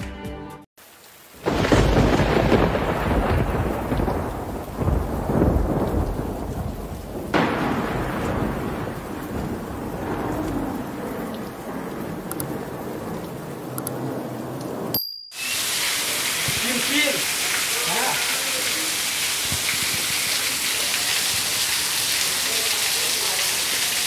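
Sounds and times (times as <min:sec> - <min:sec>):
steady rain: 0:00.8 - 0:24.0
thunder claps: 0:01.4 - 0:14.9.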